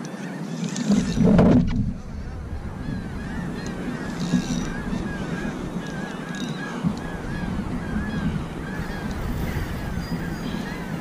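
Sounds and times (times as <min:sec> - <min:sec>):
steady low rumble: 0:01.0 - 0:06.0, 0:06.9 - 0:11.0
rhythmic squeaking: 0:08.8 - 0:11.0.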